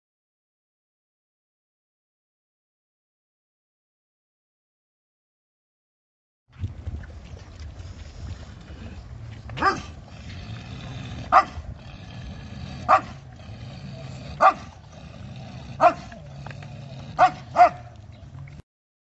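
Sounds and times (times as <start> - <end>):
dog barking: 9.6 - 9.9, 11.3 - 11.6, 12.9 - 13.2, 14.4 - 14.7, 15.8 - 16.2, 17.2 - 17.9.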